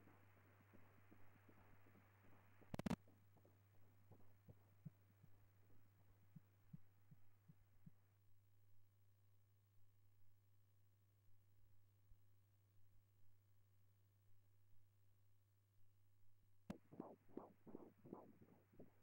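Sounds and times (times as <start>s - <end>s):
fetal heartbeat doppler whooshing: 16.7s - 19.0s
steady hum: 16.7s - 19.0s.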